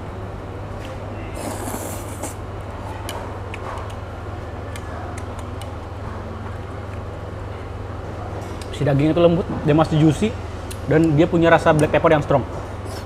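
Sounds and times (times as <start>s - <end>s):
steady low hum: 0.0s - 13.0s
man chewing: 1.4s - 2.4s.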